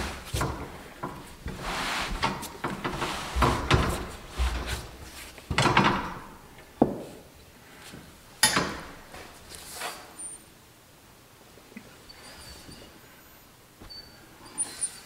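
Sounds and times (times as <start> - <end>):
hands scraping rubber tire: 1.5 - 5.4.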